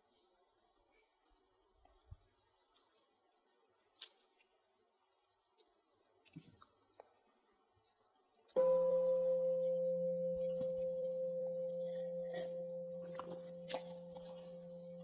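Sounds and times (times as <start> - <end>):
bowl bell ringing: 8.6 - 15.0.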